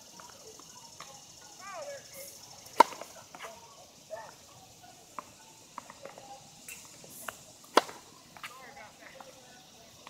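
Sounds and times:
distant voices: 0:00.0 - 0:10.0
tennis racket hitting ball: 0:02.8 - 0:03.5, 0:07.2 - 0:08.0.

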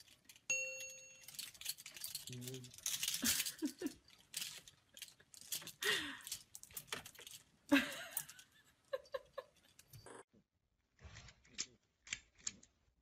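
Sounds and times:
clothes hangers clinking: 0:00.0 - 0:08.6.

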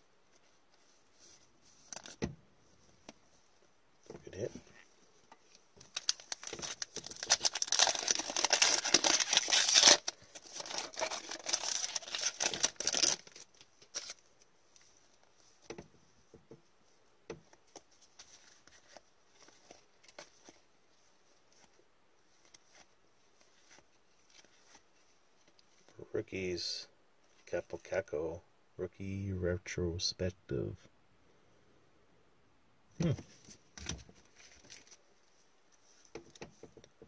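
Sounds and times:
cards rustling: 0:00.4 - 0:02.2, 0:04.2 - 0:15.2, 0:17.5 - 0:25.9, 0:33.1 - 0:36.7
foil wrapper tearing and crinkling: 0:05.8 - 0:14.2.

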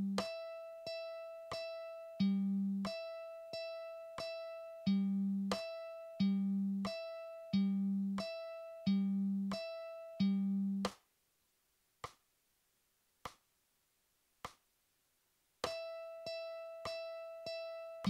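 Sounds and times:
mandolin picking single notes: 0:00.0 - 0:10.9, 0:15.6 - 0:18.0.

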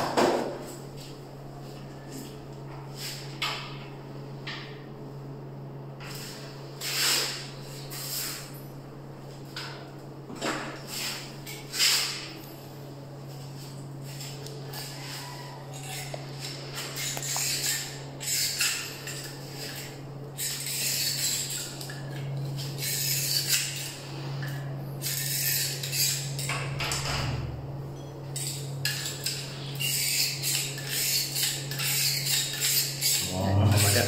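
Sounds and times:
steady low hum: 0:00.0 - 0:34.0
metal scraping on window frame: 0:28.4 - 0:34.0.

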